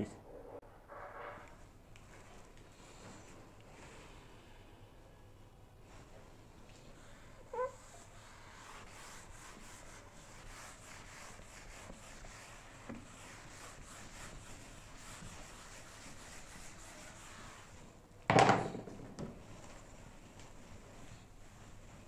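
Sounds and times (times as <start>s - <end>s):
rubbing strokes on whiteboard: 5.8s - 18.0s, 19.2s - 22.0s
knock against board: 18.3s - 18.9s.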